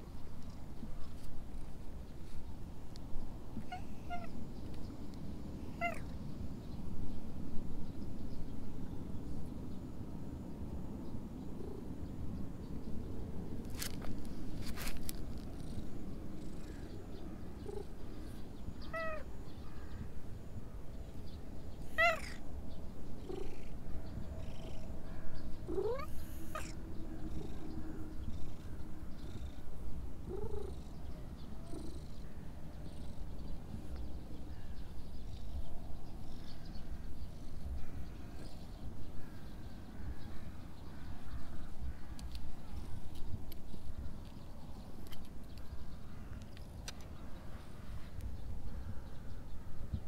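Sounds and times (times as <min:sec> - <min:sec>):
cat purring: 0:23.2 - 0:24.9, 0:25.6 - 0:32.2.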